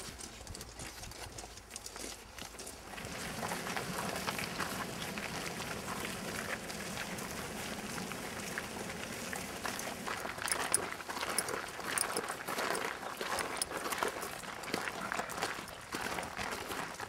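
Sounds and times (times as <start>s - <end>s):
group footsteps on pavement: 0.0s - 4.8s, 9.5s - 17.0s.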